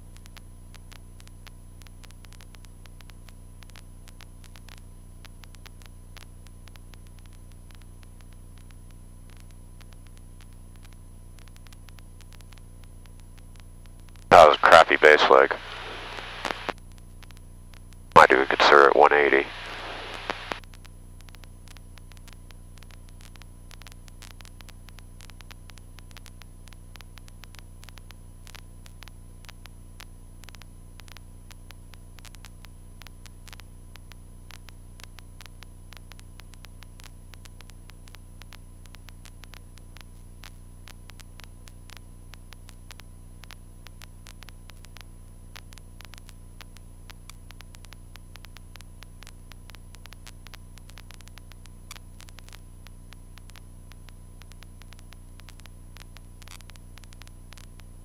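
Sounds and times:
crackling static: 0.0s - 58.0s
low hum: 14.3s - 16.7s, 18.2s - 20.6s.

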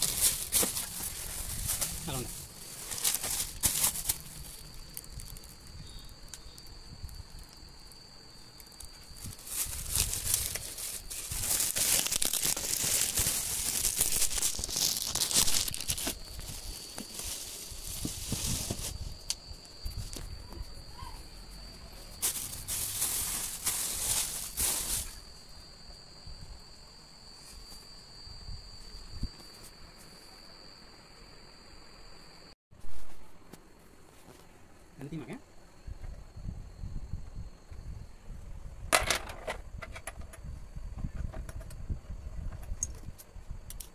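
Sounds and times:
plastic packaging crinkling: 0.0s - 7.6s, 8.5s - 19.2s, 22.2s - 25.3s.

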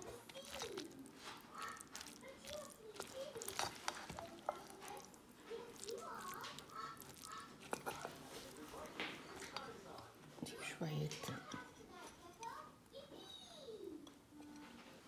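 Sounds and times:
spatula scraping in bowl: 0.0s - 5.9s
faint voices: 0.0s - 15.0s.

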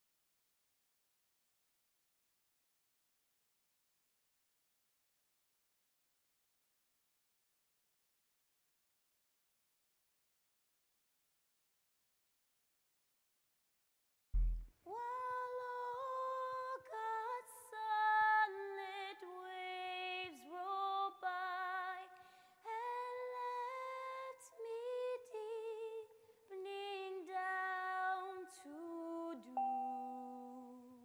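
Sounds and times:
low thud: 14.4s - 14.7s
woman singing unaccompanied: 14.9s - 31.0s.

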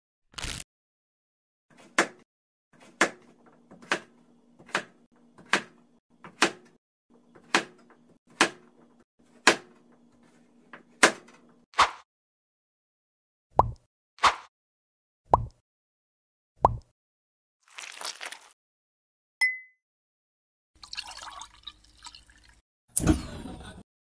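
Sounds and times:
knife chopping on cutting board: 1.8s - 2.2s, 2.8s - 12.0s.

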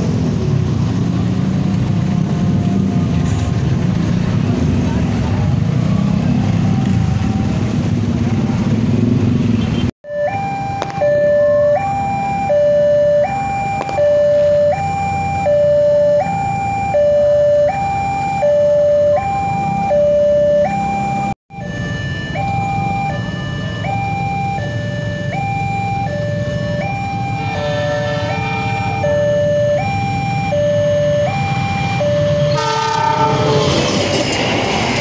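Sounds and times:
engine and traffic rumble: 0.0s - 35.0s
two-tone crossing alarm: 9.8s - 35.0s.

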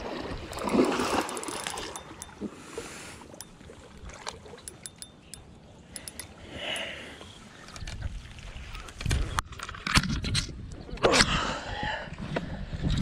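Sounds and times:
water splashing from net: 0.0s - 2.0s.

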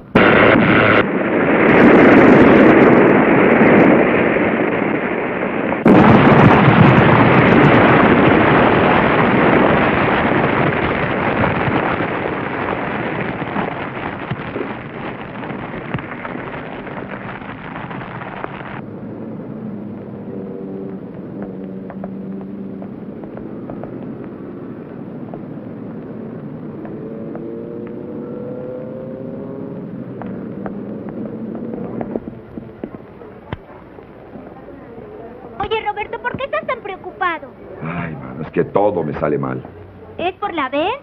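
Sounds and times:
loud blast: 0.0s - 18.8s
rushing noise of car burning: 0.0s - 41.0s.

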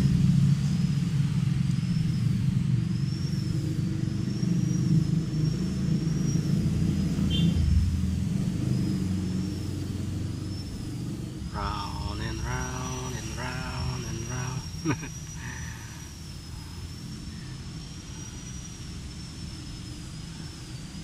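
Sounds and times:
engine humming: 0.0s - 16.3s
faint high wavering tone: 11.5s - 20.5s.

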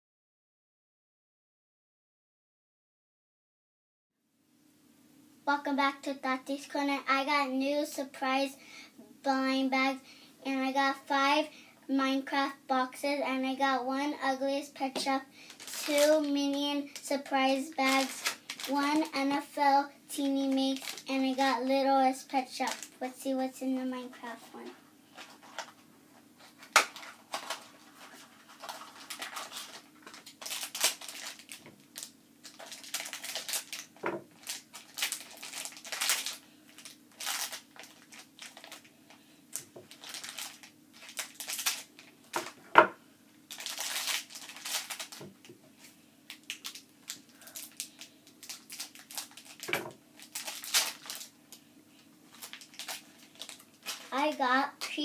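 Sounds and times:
packaging crinkling and tearing: 15.4s - 19.2s, 20.4s - 21.4s, 22.5s - 23.0s, 26.5s - 42.6s, 43.5s - 51.4s, 52.0s - 54.2s.

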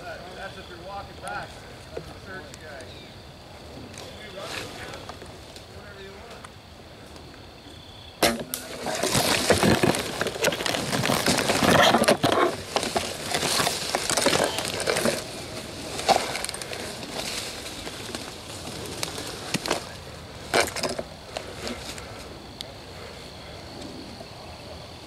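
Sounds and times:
brush and leaves crunching: 3.8s - 6.5s, 8.2s - 22.7s.

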